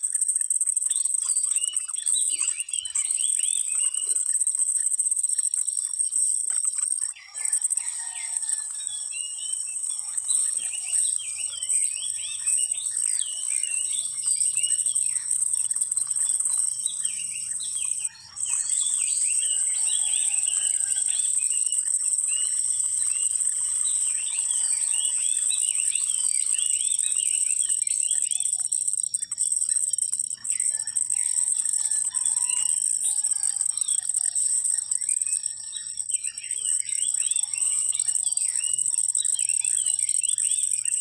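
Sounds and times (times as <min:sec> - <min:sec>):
birds chirping: 0:00.0 - 0:41.0
high-pitched insect drone: 0:00.0 - 0:41.0.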